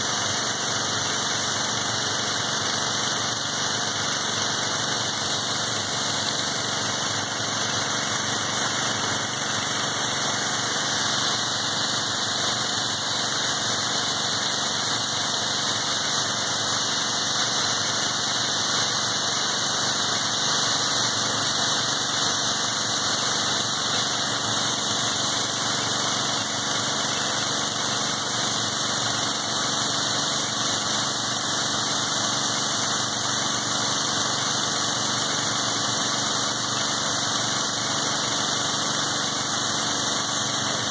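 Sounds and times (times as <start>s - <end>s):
pressure washer engine humming: 0.0s - 40.9s
spray jet hissing: 0.0s - 40.9s.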